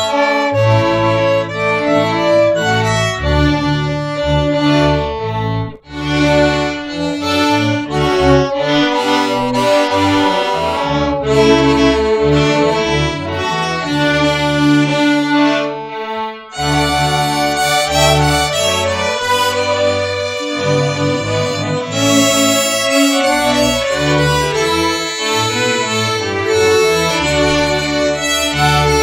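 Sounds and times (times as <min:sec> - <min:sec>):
string orchestra playing: 0:00.0 - 0:29.0.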